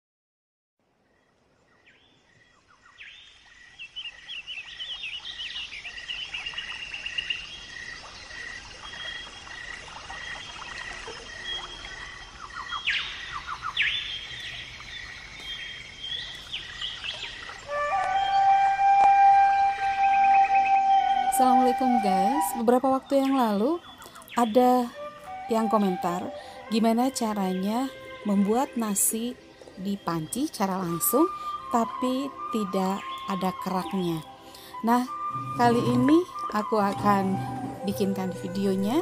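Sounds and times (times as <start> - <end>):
birds chirping: 1.6 - 39.0
held musical note: 17.7 - 23.5, 31.0 - 39.0.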